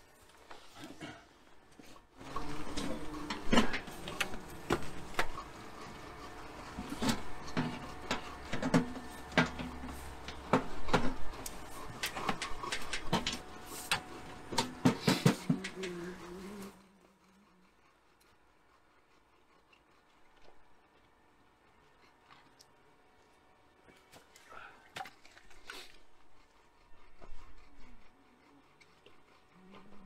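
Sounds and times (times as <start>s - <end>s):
objects being handled knocks: 6.8s - 16.0s.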